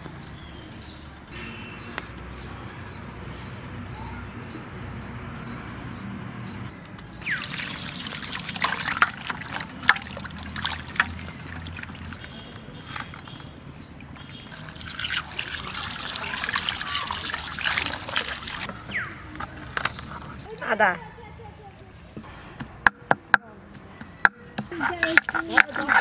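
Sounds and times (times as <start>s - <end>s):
water splashing into steel bowl: 7.2s - 13.2s, 14.0s - 19.6s.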